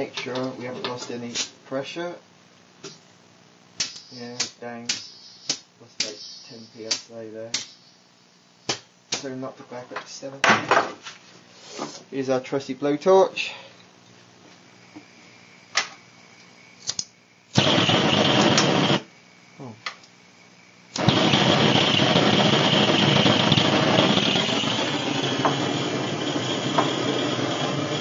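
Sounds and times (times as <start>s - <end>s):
blowtorch burning with rushing hiss: 3.7s - 9.3s, 17.5s - 19.2s, 20.8s - 28.0s
gas hissing from valve: 3.8s - 8.0s, 16.8s - 19.1s, 20.9s - 28.0s.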